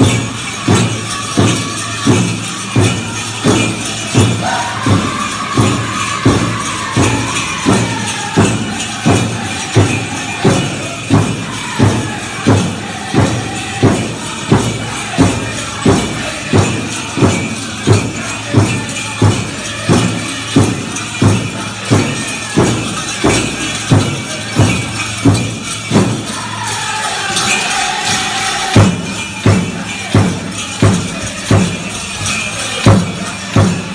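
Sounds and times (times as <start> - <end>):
big drum beating: 0.0 - 33.9
jingling leg bells: 0.0 - 33.9
high-pitched singing: 3.4 - 17.3.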